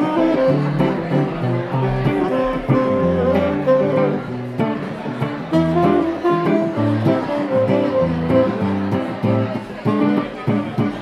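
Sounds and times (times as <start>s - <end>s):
guitar background music: 0.0s - 11.0s.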